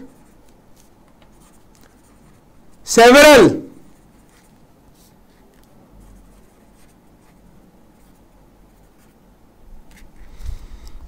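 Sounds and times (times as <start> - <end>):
pen scratching on paper: 0.0 - 2.8, 3.9 - 9.2.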